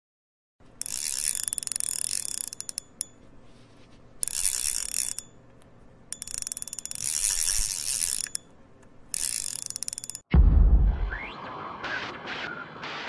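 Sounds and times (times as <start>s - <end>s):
fishing reel ratchet clicking: 0.8s - 3.2s, 4.2s - 5.5s, 6.1s - 10.3s.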